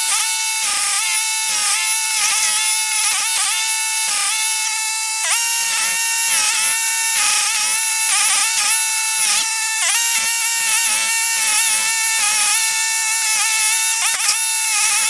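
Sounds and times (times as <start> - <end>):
stump grinder whining: 0.0 - 15.0.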